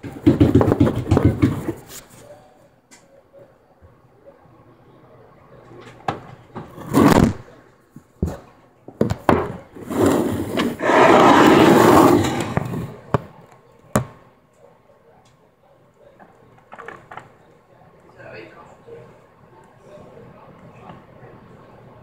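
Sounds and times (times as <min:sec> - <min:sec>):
loud rough rushing scrape: 0:09.8 - 0:12.9.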